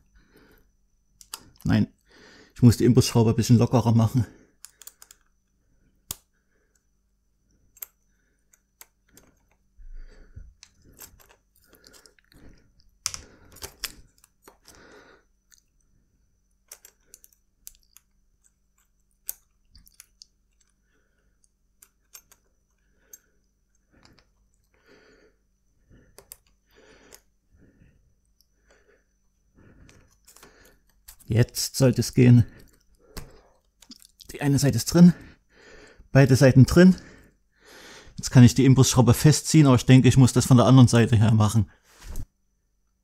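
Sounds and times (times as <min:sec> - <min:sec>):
small metallic clicks and scrapes: 0:04.6 - 0:05.4, 0:10.6 - 0:14.8, 0:16.6 - 0:23.2, 0:26.1 - 0:27.3, 0:29.8 - 0:31.3.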